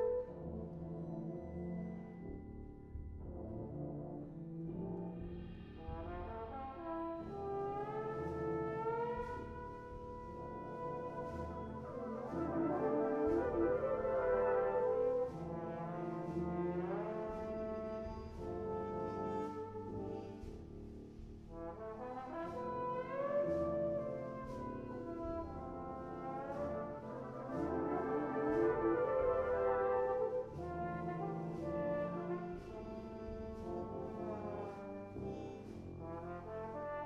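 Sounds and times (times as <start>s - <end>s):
brass band playing: 0.0s - 1.7s, 4.9s - 20.6s, 21.5s - 37.0s
trombone: 0.0s - 2.5s, 3.2s - 37.0s.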